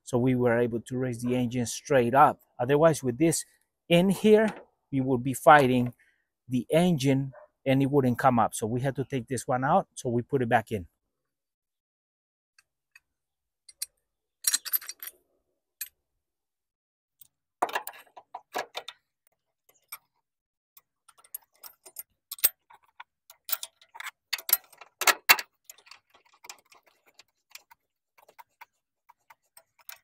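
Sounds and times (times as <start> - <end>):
metal engine mount parts clinking: 13.7 - 15.2, 17.2 - 19.0, 20.8 - 28.4.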